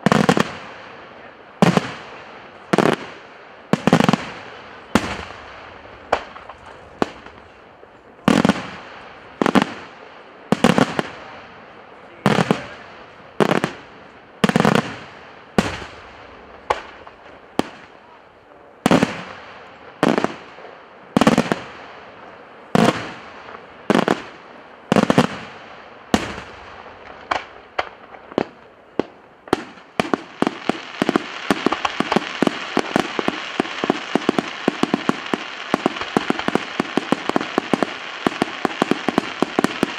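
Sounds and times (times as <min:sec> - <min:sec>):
rapid firework crackling: 0:00.0 - 0:18.1, 0:18.8 - 0:22.0, 0:22.7 - 0:39.9
firework shells bursting with echo: 0:01.6 - 0:11.3, 0:12.0 - 0:18.0, 0:26.1 - 0:39.9.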